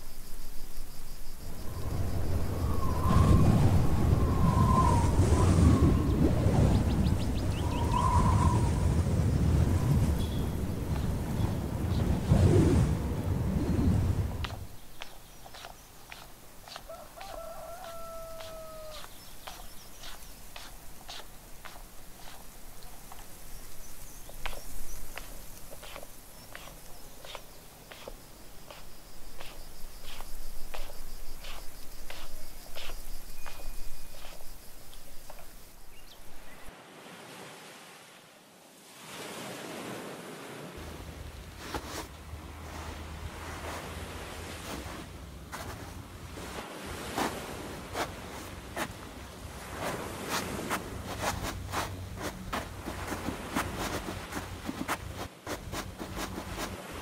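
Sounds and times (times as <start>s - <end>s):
faint high chirping: 1.4s - 9.0s, 9.8s - 12.7s, 13.4s - 36.7s
wind on microphone: 1.4s - 28.1s
sea surf: 1.5s - 14.8s, 15.6s - 22.7s, 36.4s - 57.0s
bare feet stepping in sand: 14.1s - 36.6s, 40.8s - 57.0s
footsteps walking: 14.4s - 35.6s, 44.6s - 46.0s, 50.4s - 56.8s.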